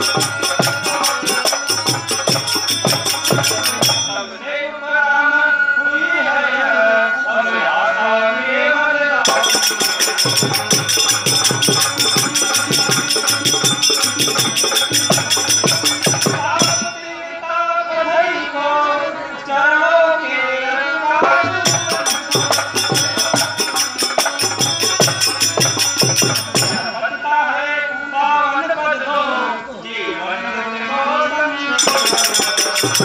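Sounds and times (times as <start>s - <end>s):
drum beating steady rhythm: 0.0s - 4.3s, 9.3s - 17.1s, 21.2s - 27.1s, 31.8s - 33.0s
jingling percussion: 0.0s - 4.5s, 9.2s - 17.3s, 21.2s - 27.3s, 31.8s - 33.0s.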